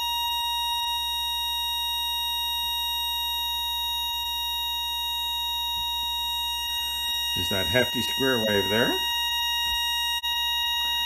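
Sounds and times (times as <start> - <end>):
steady high-pitched tone: 5.7 - 11.0.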